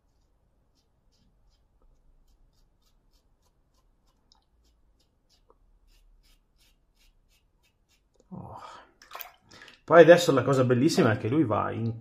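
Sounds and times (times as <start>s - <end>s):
razor scraping stubble: 0.7s - 8.3s.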